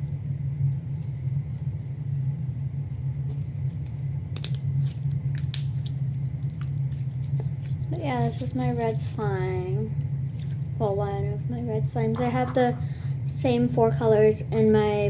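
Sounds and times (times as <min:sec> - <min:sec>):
sticky clicks and pops of slime: 0:04.4 - 0:04.6, 0:05.4 - 0:05.8.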